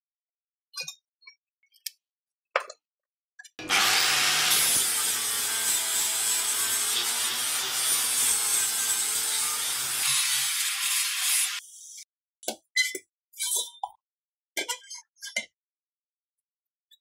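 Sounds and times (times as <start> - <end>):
angle grinder grinding metal: 3.6 - 11.6.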